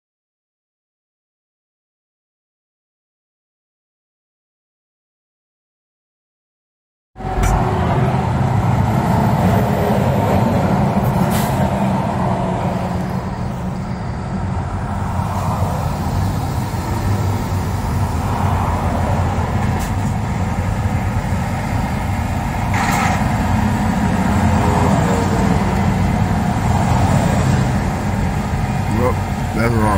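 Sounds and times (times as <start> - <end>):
car road noise rumble: 7.2 - 29.9.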